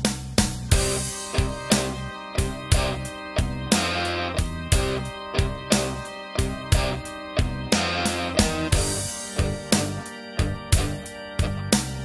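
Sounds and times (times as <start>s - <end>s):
fast drum beat: 0.0s - 3.0s
sustained guitar-like notes: 0.7s - 12.0s.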